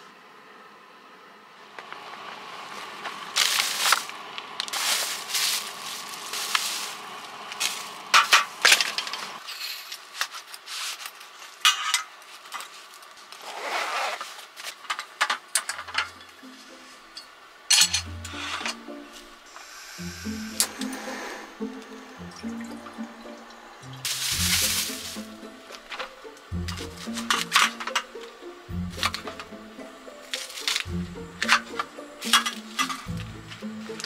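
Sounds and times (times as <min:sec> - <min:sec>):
plastic wrap crinkling: 0:03.4 - 0:08.0, 0:09.5 - 0:14.8, 0:24.1 - 0:25.9
objects clicking and knocking: 0:14.6 - 0:16.4, 0:24.0 - 0:28.3, 0:28.9 - 0:29.6, 0:30.3 - 0:34.0.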